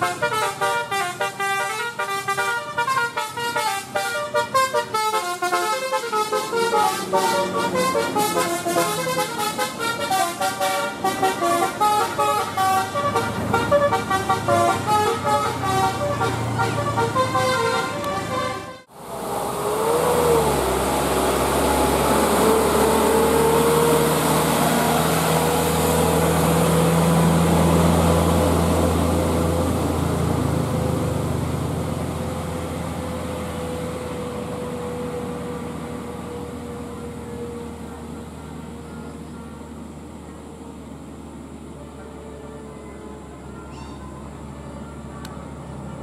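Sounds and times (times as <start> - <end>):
truck horn: 0.0 - 18.9, 41.8 - 45.3
truck engine running: 0.0 - 46.0.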